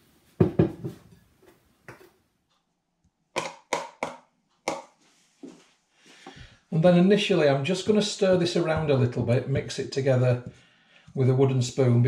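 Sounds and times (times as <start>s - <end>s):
utensil knocking on mixing bowl: 0.4s - 1.0s.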